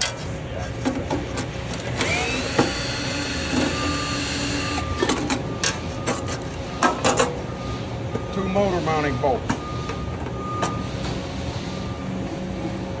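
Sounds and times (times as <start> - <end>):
cordless drill running: 2.0 - 4.8.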